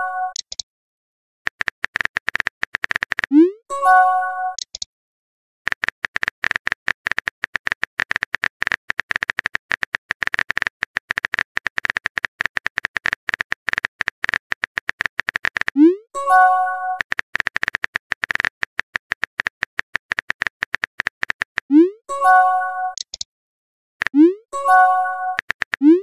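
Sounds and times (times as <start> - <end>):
keyboard typing clicks: 0.3 - 0.6, 1.5 - 3.5, 4.5 - 4.9, 5.7 - 23.3, 24.0 - 26.0.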